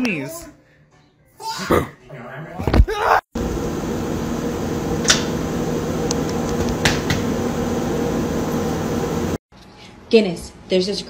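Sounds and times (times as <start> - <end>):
steady machine hum: 3.4 - 9.4.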